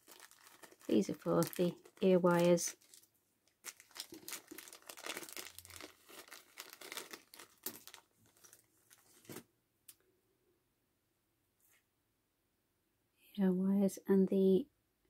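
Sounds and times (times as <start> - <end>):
plastic bag crinkling: 0.0 - 9.4.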